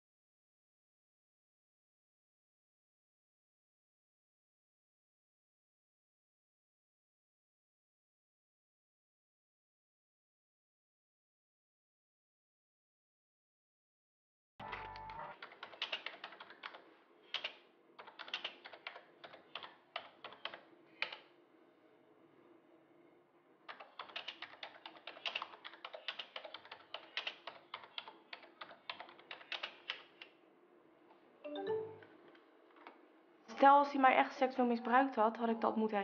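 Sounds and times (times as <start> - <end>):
faint steady hum: 14.7 - 36.0
keyboard key clicks: 15.4 - 21.2, 23.7 - 30.3.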